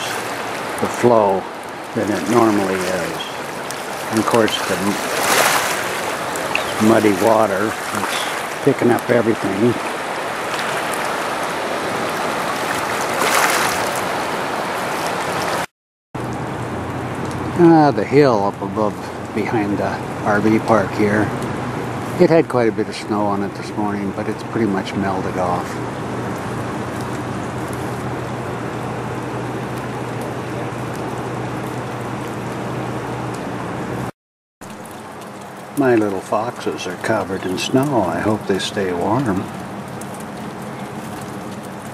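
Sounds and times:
low steady hum: 0.0s - 13.3s, 16.2s - 34.1s
river rushing in flood: 0.0s - 15.7s, 34.8s - 41.9s.

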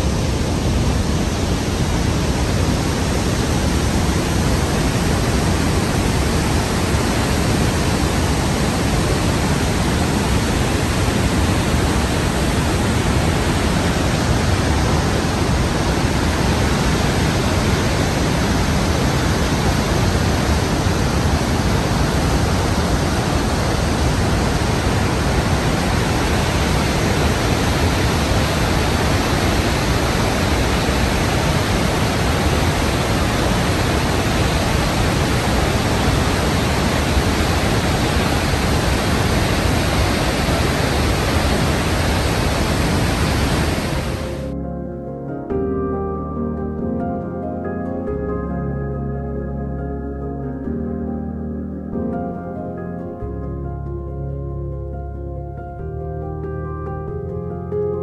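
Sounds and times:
waterfall rushing: 0.0s - 44.6s.

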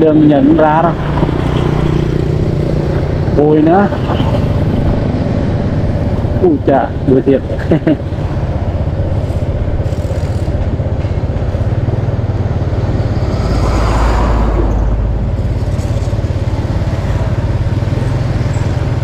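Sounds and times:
heavy truck passing: 0.0s - 19.0s
motorbike engine and wind: 0.0s - 19.0s.

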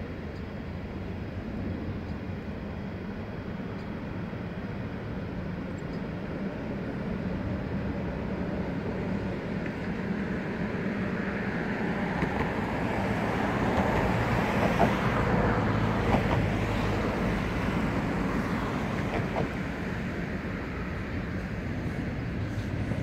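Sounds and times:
traffic rumble: 0.0s - 23.0s.

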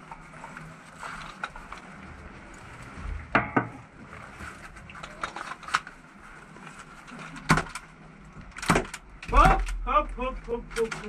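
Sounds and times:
low steady background noise: 0.0s - 11.0s
sharp knocks and clicks: 8.5s - 9.9s.

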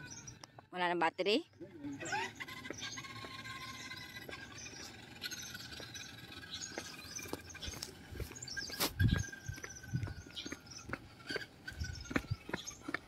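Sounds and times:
small electric motor whining: 1.8s - 10.4s
faint footsteps on pavement: 2.0s - 13.0s.

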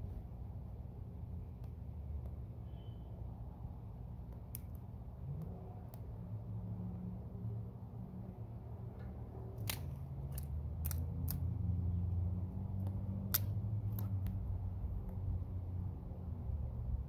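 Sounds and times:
low steady hum: 0.0s - 17.0s
dry twigs snapping: 9.5s - 11.5s, 12.8s - 14.4s.

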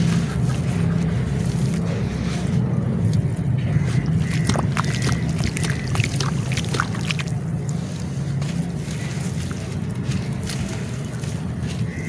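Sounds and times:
low rumble: 0.0s - 12.0s
wet clay crumbling in water: 4.1s - 7.4s.

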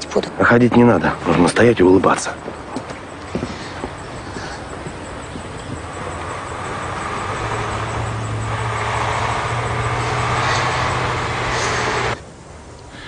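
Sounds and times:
vehicle engine hum: 2.4s - 12.8s.

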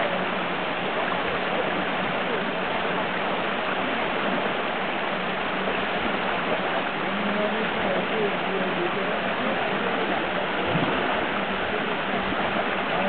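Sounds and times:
stream rushing over rocks: 0.0s - 13.0s
elephants splashing in water: 10.6s - 11.8s.

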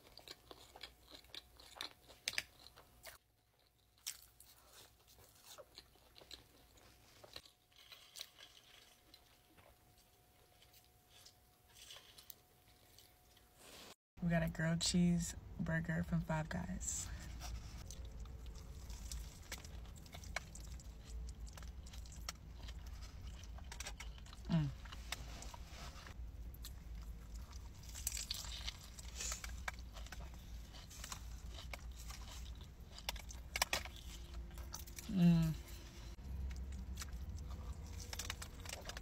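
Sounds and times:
person chewing food: 0.0s - 13.6s, 17.2s - 39.0s
low steady hum: 14.2s - 39.0s
person humming mm: 24.5s - 24.8s, 35.0s - 35.8s.

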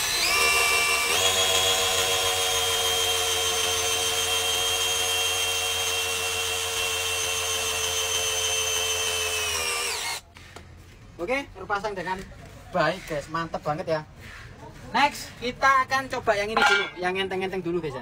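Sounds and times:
cordless drill motor whining: 0.0s - 10.2s.

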